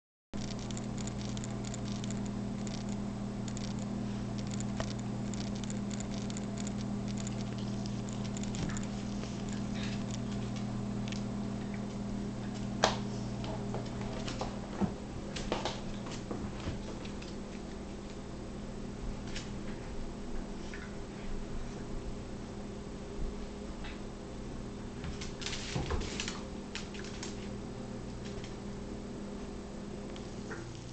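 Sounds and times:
dog claws clicking on floor: 0:00.4 - 0:11.2, 0:25.1 - 0:27.5
low hum: 0:00.4 - 0:30.9.

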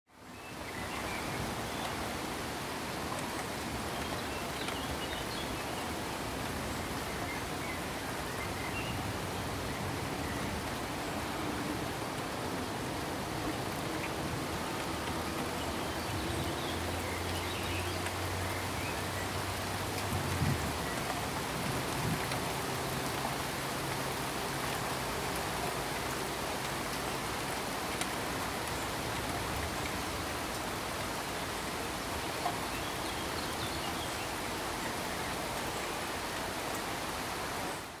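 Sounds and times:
pink noise hiss: 0:00.1 - 0:38.0.

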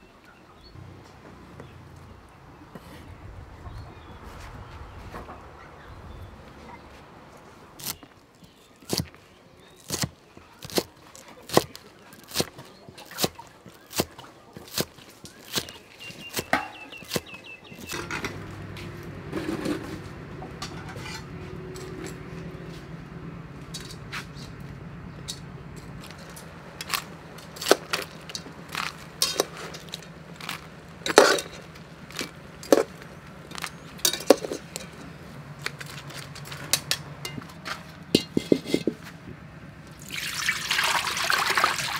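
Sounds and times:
steady low hum: 0:00.7 - 0:08.3, 0:17.8 - 0:40.1
metal tongs clinking: 0:20.5 - 0:22.3, 0:25.2 - 0:39.0.

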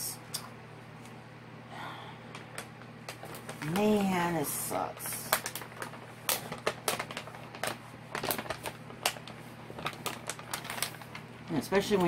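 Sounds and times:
plastic and paper sheets crinkling: 0:02.4 - 0:12.0.

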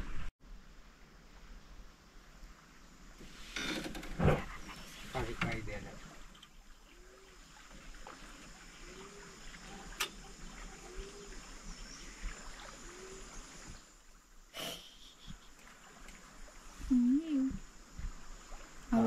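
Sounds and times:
water lapping from paddle: 0:04.2 - 0:14.2, 0:15.0 - 0:19.0.

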